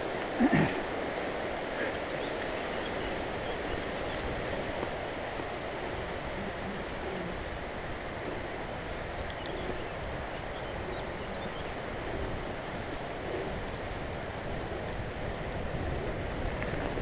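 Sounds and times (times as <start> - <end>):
bike tyres rumbling on dirt: 0.0 - 17.0
wind rushing on microphone: 0.0 - 17.0
faint ticks: 3.8 - 13.8, 15.7 - 17.0.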